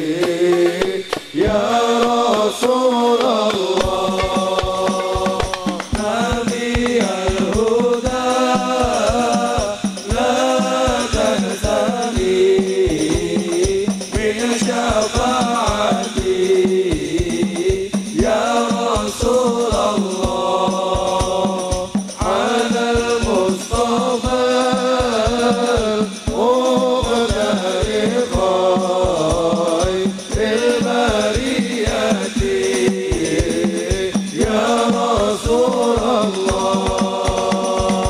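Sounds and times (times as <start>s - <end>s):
frame drums beating: 0.0s - 38.0s
men singing: 0.0s - 38.0s.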